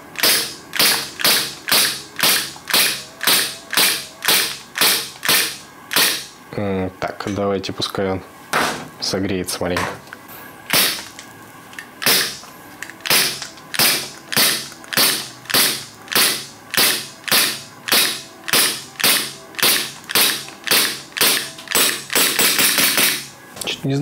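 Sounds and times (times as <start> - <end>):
airsoft pistol shots: 0.2 - 6.3, 10.7 - 11.0, 12.0 - 12.4, 13.0 - 23.3.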